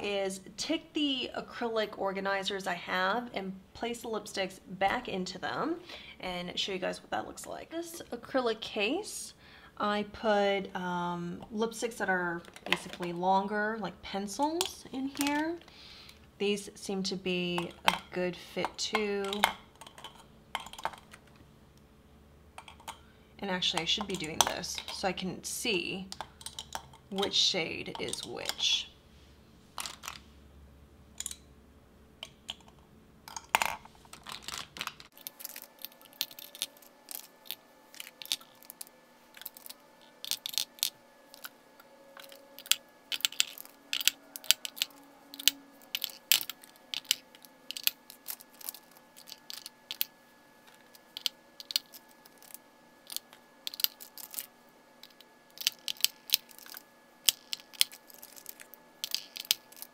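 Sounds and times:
lipstick tubes clicking on plastic: 0:42.2 - 0:50.1.

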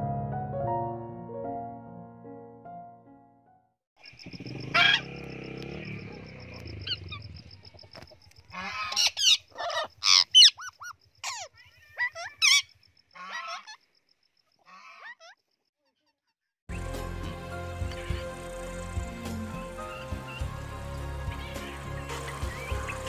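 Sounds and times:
parrots squawking: 0:04.7 - 0:05.1, 0:08.5 - 0:13.8.

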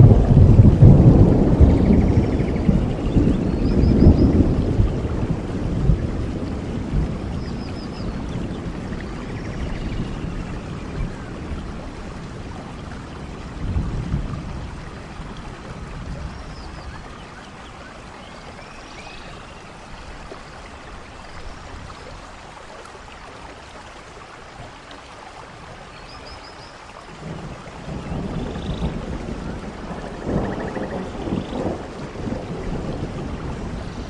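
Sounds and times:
thunder rumble: 0:00.0 - 0:17.4, 0:27.2 - 0:34.0
rushing falling water: 0:00.0 - 0:34.0.

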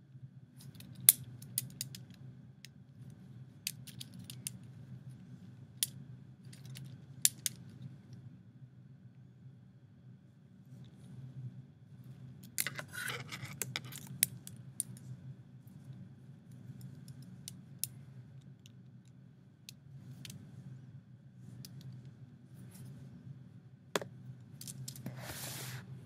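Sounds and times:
steady low hum: 0:00.0 - 0:26.0
plastic toy pieces clicking: 0:00.7 - 0:02.1, 0:03.7 - 0:04.6
rustling handling noise: 0:24.0 - 0:25.9.

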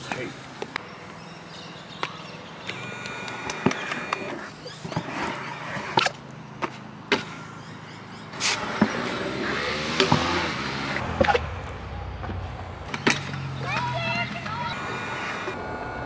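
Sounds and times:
scooter wheels rolling on concrete: 0:00.0 - 0:15.7
scooter clacking on landings and rail: 0:12.2 - 0:14.8.

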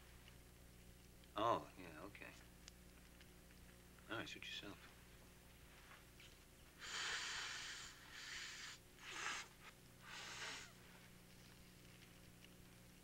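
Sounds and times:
man inhaling with hissing draws: 0:06.8 - 0:10.8.

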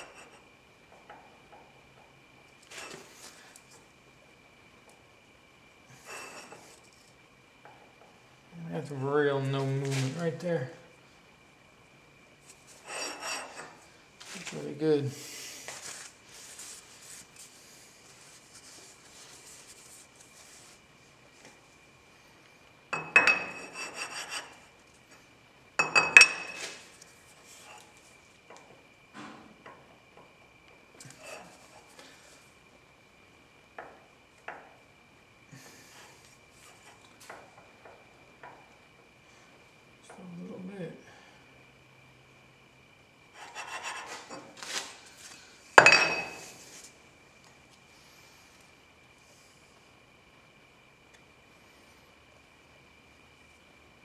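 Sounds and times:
metal scraping: 0:12.8 - 0:13.8
metal scraping on metal: 0:12.8 - 0:13.8, 0:23.2 - 0:24.6.

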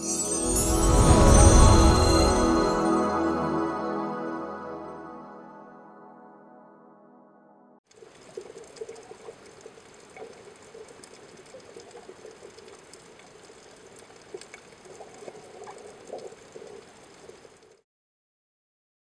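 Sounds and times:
bubbling trickling water: 0:07.9 - 0:17.8.

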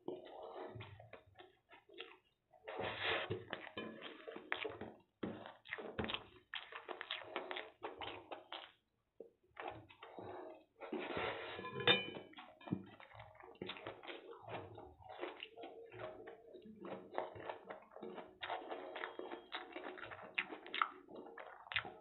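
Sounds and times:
chewing noises: 0:00.0 - 0:22.0
metallic clink of steel plate: 0:11.6 - 0:12.2.

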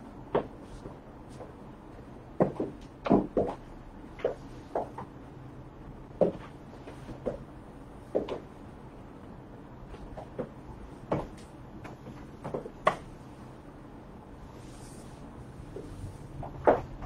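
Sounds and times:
faint steady hum: 0:00.0 - 0:17.0
high heels clicking on hard floor: 0:02.4 - 0:05.1, 0:08.1 - 0:08.5, 0:09.9 - 0:13.1.

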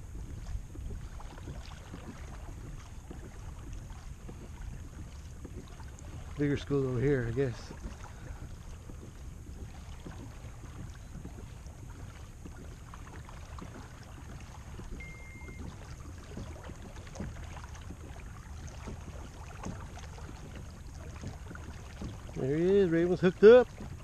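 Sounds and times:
wind rumble on microphone: 0:00.0 - 0:24.0
faint ticks and knocks: 0:00.1 - 0:24.0
short high beep: 0:15.0 - 0:15.7.

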